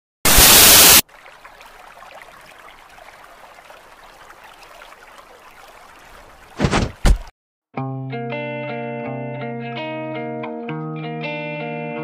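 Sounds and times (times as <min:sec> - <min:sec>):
loud sudden burst: 0:00.2 - 0:01.0
rushing like running water: 0:00.2 - 0:07.3.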